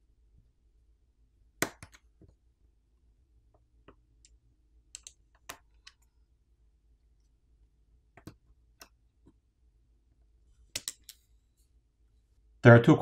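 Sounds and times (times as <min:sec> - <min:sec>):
small plastic clicks and taps: 0:08.2 - 0:09.0.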